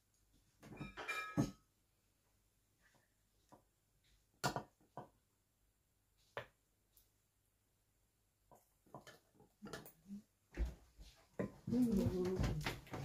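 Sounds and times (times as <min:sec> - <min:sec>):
dishes clinking: 0:00.7 - 0:01.7.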